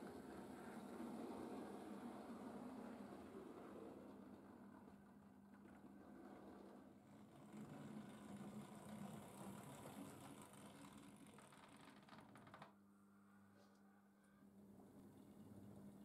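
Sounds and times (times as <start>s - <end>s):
model train motor whirring: 7.3s - 12.0s.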